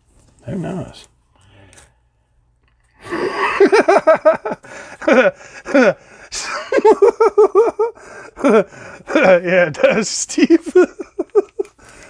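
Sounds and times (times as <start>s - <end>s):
man laughing hard: 3.0s - 11.8s.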